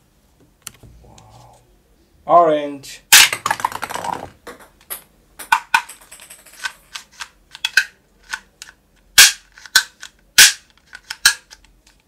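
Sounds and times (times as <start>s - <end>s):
plastic toy pistol clicks: 7.5s - 11.7s.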